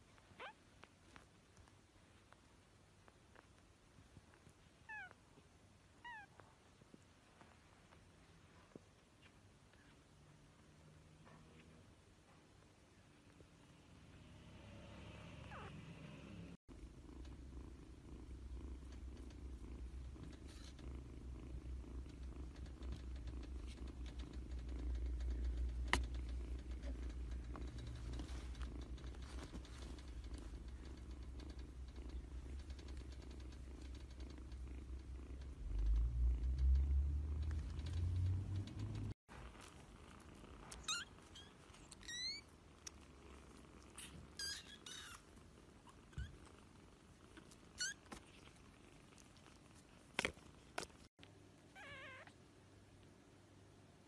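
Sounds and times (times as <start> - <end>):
kitten purring: 0.0 - 54.0
high-pitched kitten squeaks: 4.8 - 5.2, 6.0 - 6.4, 40.7 - 42.6, 44.0 - 45.3, 47.7 - 48.5, 51.7 - 52.4.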